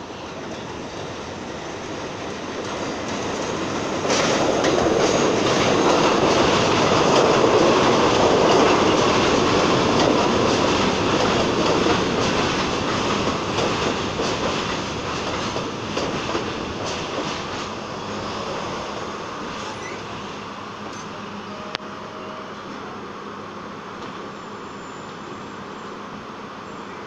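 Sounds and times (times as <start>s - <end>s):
subway train wheels rumbling and clattering: 0.0s - 27.0s
wheel squeal: 19.6s - 20.1s.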